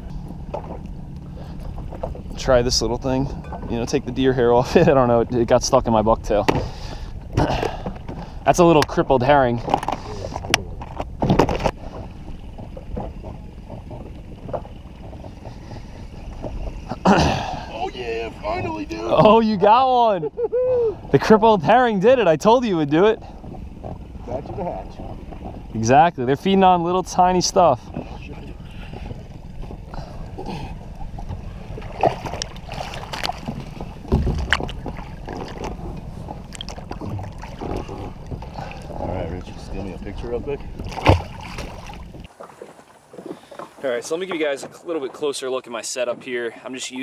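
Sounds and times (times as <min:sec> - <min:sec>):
low rumble of water and wind: 0:00.0 - 0:47.0
water splashing and sloshing: 0:00.0 - 0:47.0
waves slapping against boat: 0:00.0 - 0:47.0
thump against boat: 0:06.4 - 0:08.2, 0:09.6 - 0:15.4, 0:31.2 - 0:36.0, 0:40.8 - 0:44.8.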